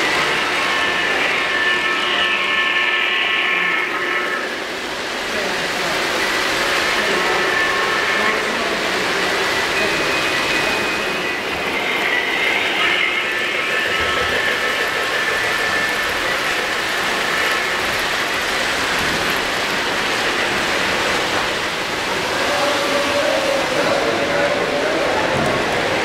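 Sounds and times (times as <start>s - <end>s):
model train wheels rolling on rails: 0.0s - 26.0s
faint high steady tones: 6.2s - 19.1s.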